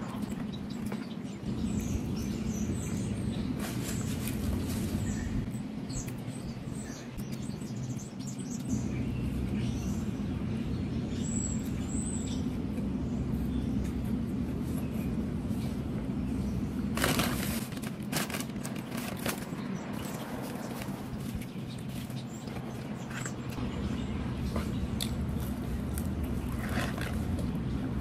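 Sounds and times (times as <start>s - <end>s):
steady low hum: 0.0s - 28.0s
cardboard box crackling and rustling: 17.0s - 19.6s.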